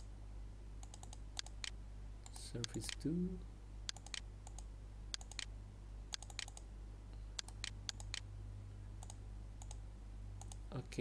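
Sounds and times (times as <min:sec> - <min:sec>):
low electrical hum: 0:00.0 - 0:11.0
mouse and keyboard clicks: 0:03.9 - 0:05.5, 0:06.1 - 0:06.6.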